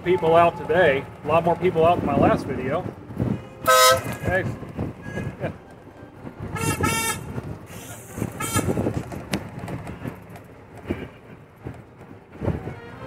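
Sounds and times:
cart rumbling on gravel: 0.0s - 13.0s
golf cart horn beeping: 3.6s - 4.6s, 6.5s - 9.0s, 12.6s - 13.0s.

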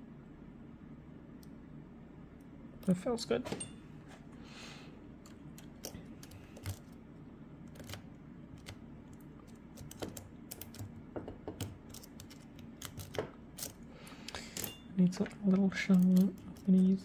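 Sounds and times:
lock pick clicking and scraping: 11.6s - 17.0s.

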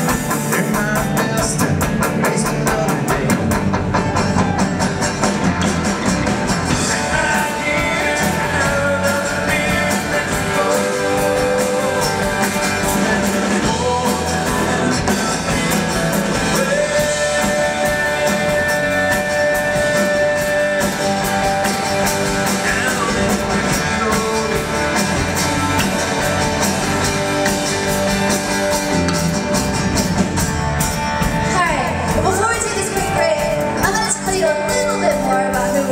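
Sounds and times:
acoustic and electric guitars: 0.0s - 35.9s
bass guitar: 0.0s - 35.9s
drums: 0.0s - 35.9s
man singing: 0.1s - 4.6s, 6.7s - 26.3s.

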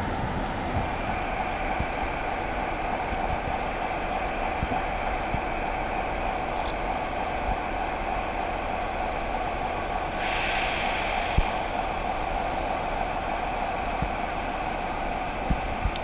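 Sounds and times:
locomotive engine idling: 0.0s - 16.0s
air hiss: 9.9s - 15.6s.

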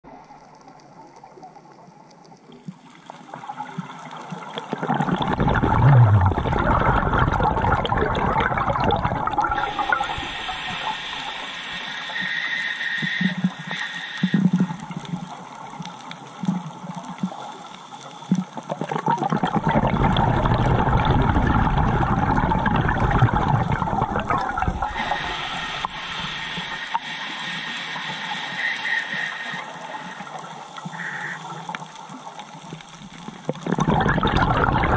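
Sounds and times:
underwater exhaled bubbles rushing: 3.1s - 12.1s, 18.3s - 27.2s, 28.4s - 34.9s.

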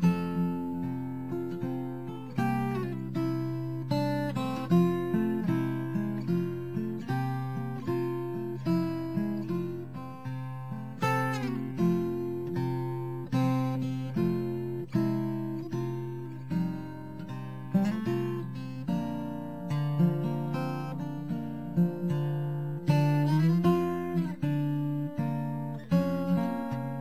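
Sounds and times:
acoustic guitar music: 0.0s - 27.0s.

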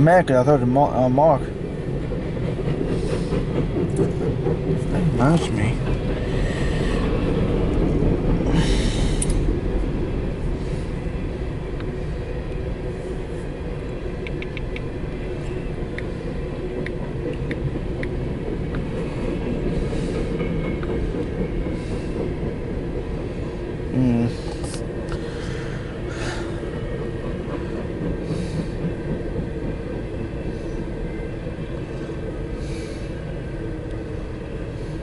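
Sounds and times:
train cars rumbling on rails: 0.0s - 35.0s
faint clicks: 14.2s - 16.1s.

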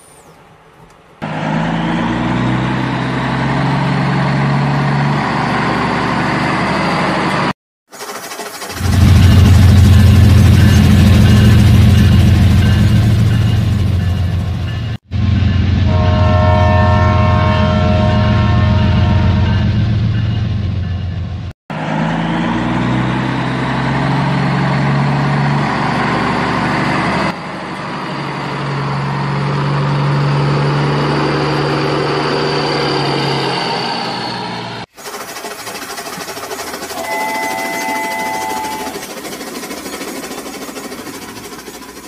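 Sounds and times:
electronic horn tone: 15.9s - 19.8s, 37.0s - 39.1s
toy train running: 34.9s - 42.0s
toy vehicle engine drone: 35.0s - 39.4s.

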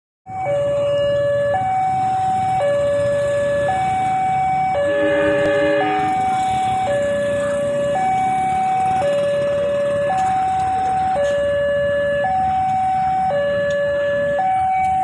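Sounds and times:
two-tone warning siren: 0.3s - 15.0s
low rumble: 4.8s - 6.4s.

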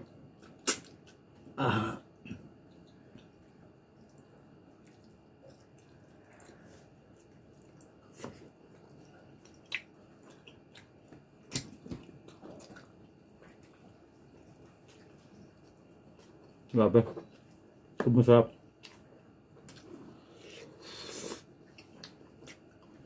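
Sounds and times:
soft chewing: 0.0s - 1.5s, 2.1s - 23.0s
wet lip smacks and clicks: 0.4s - 1.2s, 9.4s - 10.9s.

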